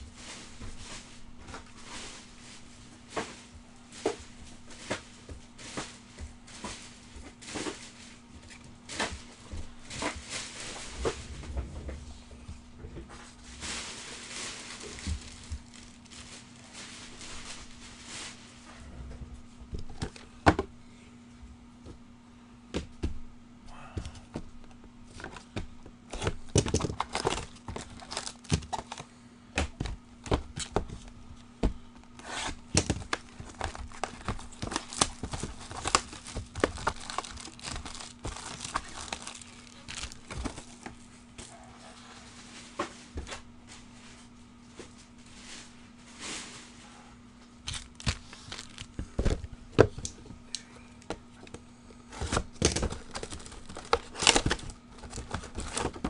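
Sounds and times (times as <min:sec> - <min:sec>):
wrappers crinkling: 0:13.2 - 0:18.7, 0:26.2 - 0:29.1, 0:32.1 - 0:41.1, 0:47.6 - 0:49.1, 0:52.2 - 0:56.0
cardboard tearing: 0:26.1 - 0:29.0, 0:32.2 - 0:40.9, 0:47.7 - 0:49.0, 0:52.2 - 0:56.0.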